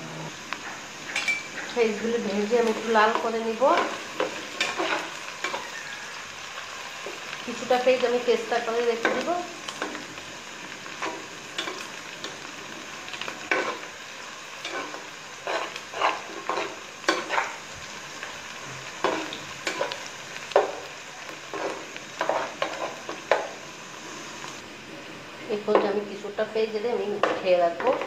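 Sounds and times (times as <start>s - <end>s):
onions sizzling in hot oil: 0.0s - 28.0s
metal spatula scraping a pot: 14.6s - 17.6s, 21.5s - 23.2s.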